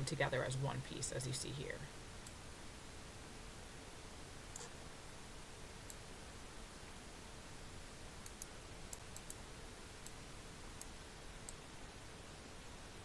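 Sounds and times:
faint steady hiss: 0.0 - 13.0
computer mouse buttons clicking: 8.2 - 9.4.

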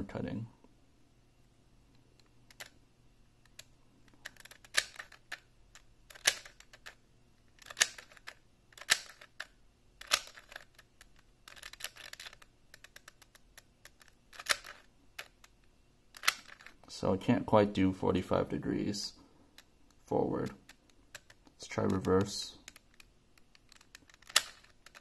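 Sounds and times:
puzzle cube clacking: 2.0 - 2.8, 3.4 - 16.8, 19.6 - 25.0.

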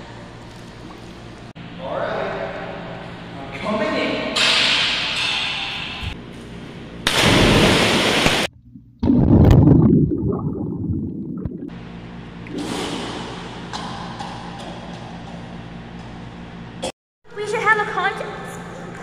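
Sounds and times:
loud splash into pool: 7.1 - 8.5
muffled underwater churning: 7.2 - 11.7.

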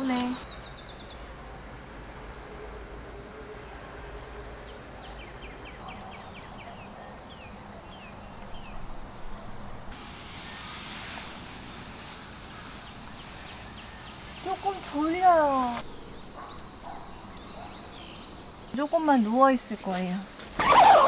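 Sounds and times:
high insect drone: 7.2 - 21.0
small birds trilling: 11.8 - 19.2.

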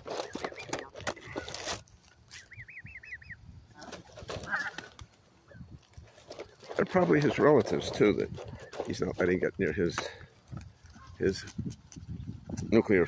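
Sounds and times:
scuffling and clicks: 0.0 - 2.6, 3.8 - 13.0
geese quick high chirps: 2.3 - 3.4.

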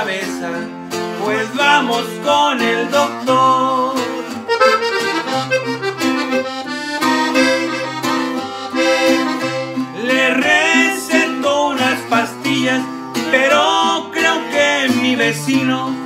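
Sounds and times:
strummed guitar chords and bass: 0.0 - 16.0
button accordion melody: 3.9 - 14.7.

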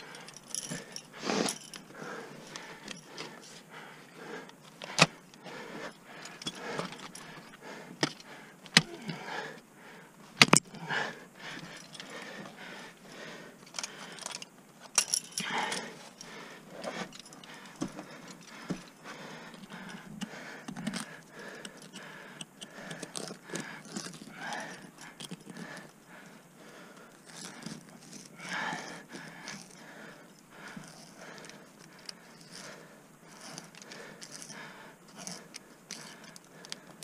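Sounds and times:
climbing hardware jangling: 0.0 - 3.4, 13.6 - 20.0
ice tools scraping and clicking: 19.6 - 25.9.

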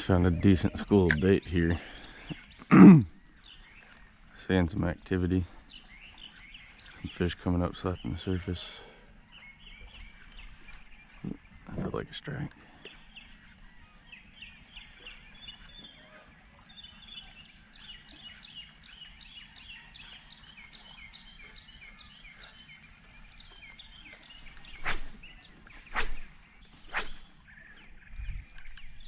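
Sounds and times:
birds chirping: 0.0 - 29.0
short rushes of noise: 24.7 - 27.4.

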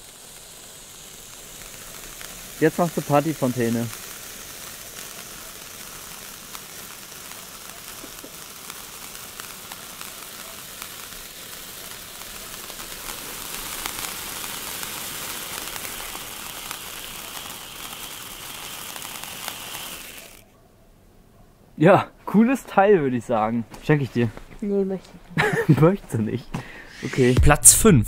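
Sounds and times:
spark fountain hissing and crackling: 0.0 - 20.5, 25.4 - 26.2, 26.8 - 27.5.

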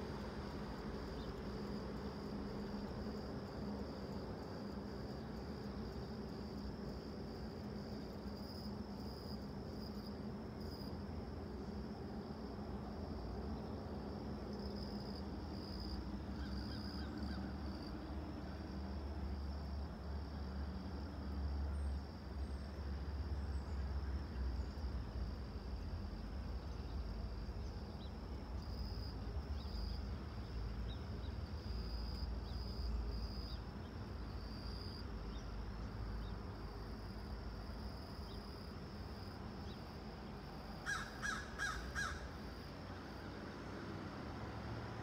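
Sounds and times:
insect chirring: 13.6 - 18.0, 34.2 - 43.2.

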